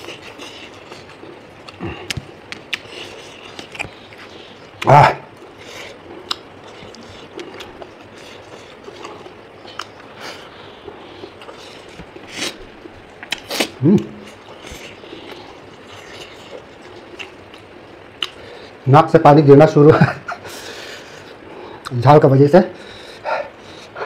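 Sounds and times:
mouth clicks and smacks: 0:00.0 - 0:10.1, 0:11.2 - 0:18.4
man chewing: 0:00.0 - 0:18.8, 0:20.4 - 0:22.0, 0:22.8 - 0:24.0.

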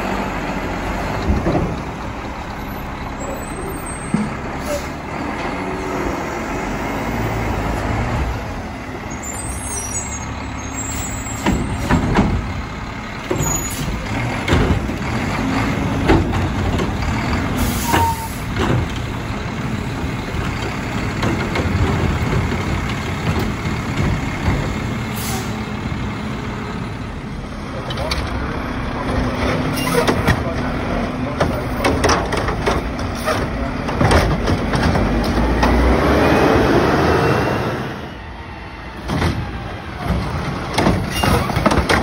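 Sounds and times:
diesel engine revving: 0:00.0 - 0:42.0
air brake hisses: 0:17.6 - 0:18.5, 0:25.2 - 0:25.6.

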